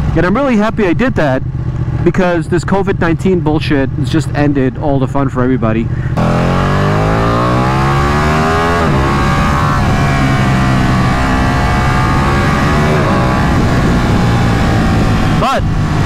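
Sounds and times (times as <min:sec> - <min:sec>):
motorcycle engine accelerating: 0:00.0 - 0:16.0
gear change: 0:05.9 - 0:16.0.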